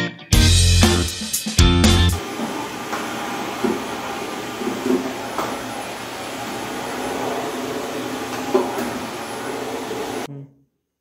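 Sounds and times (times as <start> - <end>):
handheld vacuum cleaner running: 2.2 - 10.3.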